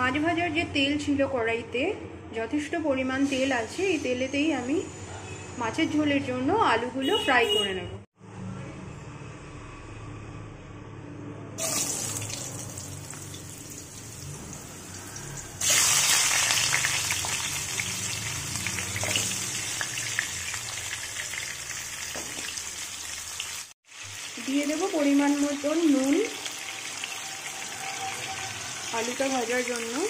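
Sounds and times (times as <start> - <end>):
potatoes sizzling in hot oil: 11.6 - 30.0.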